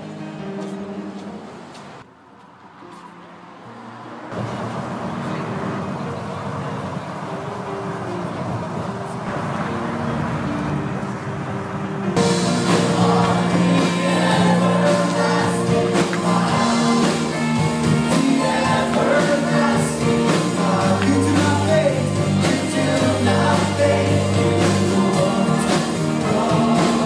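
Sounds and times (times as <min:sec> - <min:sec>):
band playing: 0:09.3 - 0:27.0
voices singing: 0:12.2 - 0:27.0.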